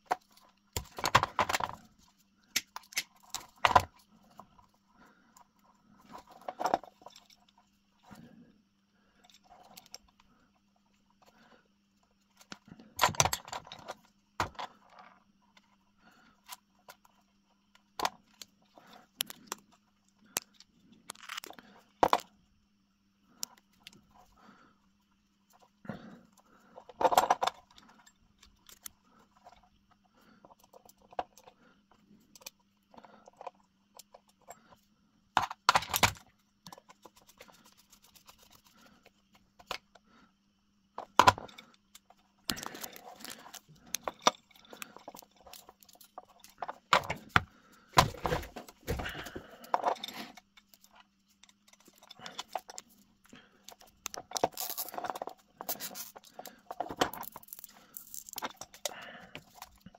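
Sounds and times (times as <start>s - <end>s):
faint steady hum: 0.0s - 59.9s
small metal parts clinking: 41.0s - 47.4s, 48.2s - 59.9s.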